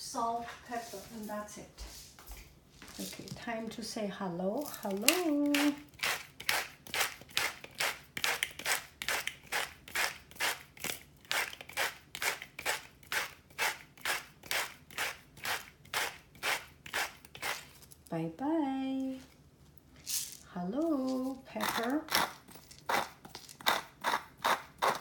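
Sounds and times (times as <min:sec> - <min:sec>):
salt mill grinding: 0:04.6 - 0:18.0, 0:21.2 - 0:25.0.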